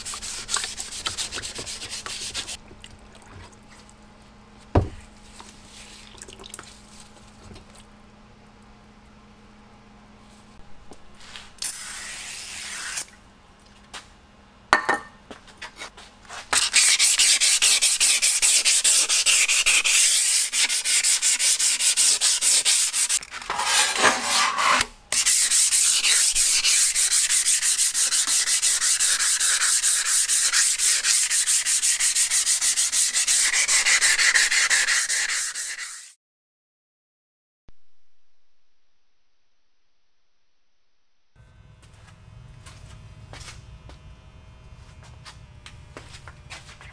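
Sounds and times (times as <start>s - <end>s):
scouring pad scrubbing saw blade: 16.6s - 36.2s.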